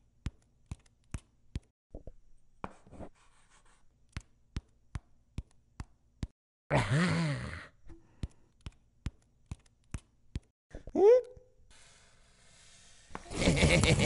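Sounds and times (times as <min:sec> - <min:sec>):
short wavering voice sound: 0:10.7 - 0:11.6.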